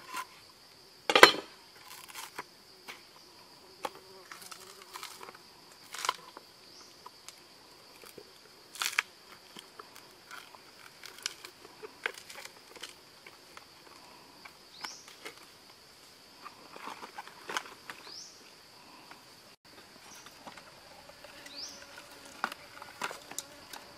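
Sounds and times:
high drone of insects: 0.0 - 23.9
crackling of plant stem handled: 3.8 - 6.4, 8.0 - 13.7.

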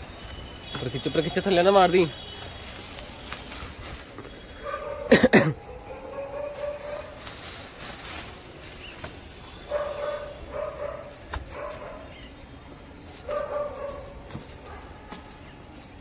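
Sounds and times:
dog barking: 4.6 - 7.2, 9.7 - 12.1, 13.2 - 15.2.

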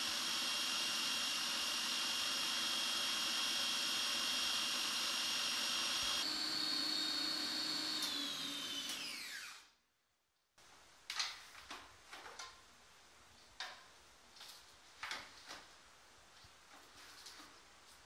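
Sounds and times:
food processor motor whining: 0.0 - 9.7.

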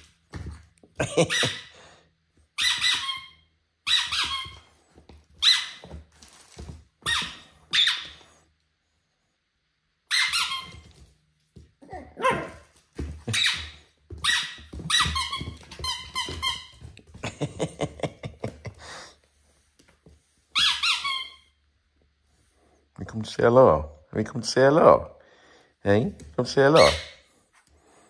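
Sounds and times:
puppy yapping: 11.8 - 12.7.

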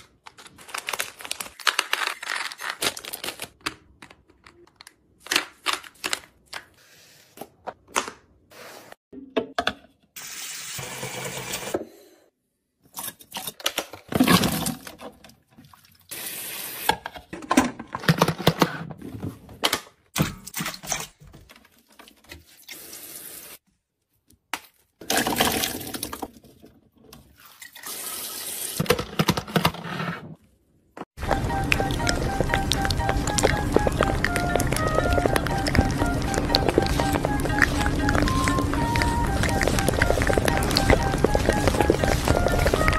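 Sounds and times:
items being handled: 31.2 - 42.9.

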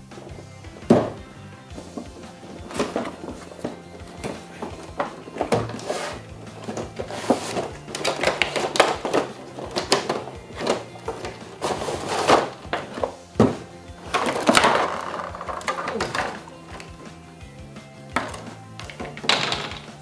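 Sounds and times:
background music: 0.0 - 20.0
cardboard box scraping: 1.8 - 7.9, 10.5 - 14.6.

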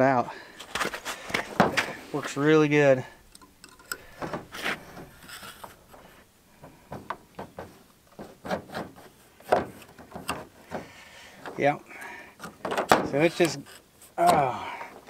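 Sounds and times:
metal clicking on metal: 3.3 - 4.2
metal hook scraping chain groove: 3.3 - 4.2.

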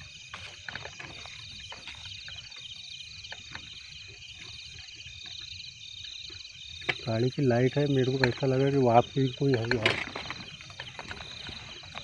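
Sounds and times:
footsteps through dry grass: 0.0 - 5.4, 10.0 - 12.0
crickets chirping: 0.0 - 12.0.

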